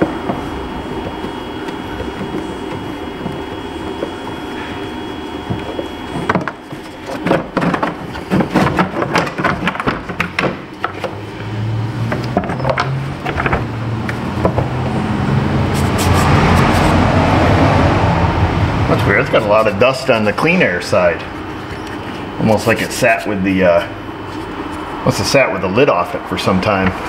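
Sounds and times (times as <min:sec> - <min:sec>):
low machine hum: 0:00.0 - 0:27.0.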